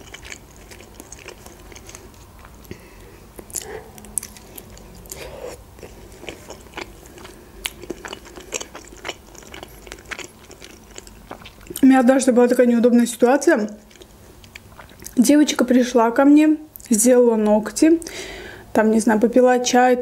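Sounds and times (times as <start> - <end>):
close chewing with mouth clicks: 0.0 - 11.9, 13.5 - 15.2.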